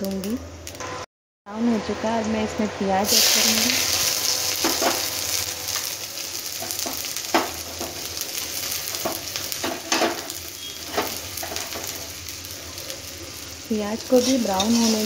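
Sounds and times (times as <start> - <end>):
onion sizzling in hot oil: 3.0 - 15.0
metal spatula scraping a pan: 14.1 - 15.0.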